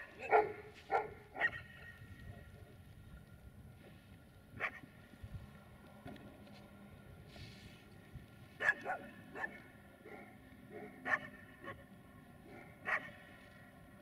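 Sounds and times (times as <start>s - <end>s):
dog barking: 0.1s - 1.7s, 8.6s - 11.8s, 12.4s - 13.2s.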